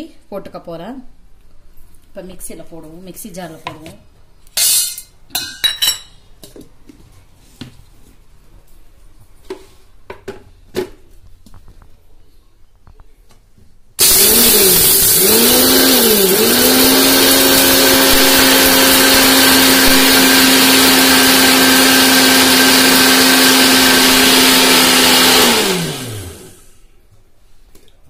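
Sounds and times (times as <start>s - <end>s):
mixer grinder motor whining: 14.0s - 26.7s.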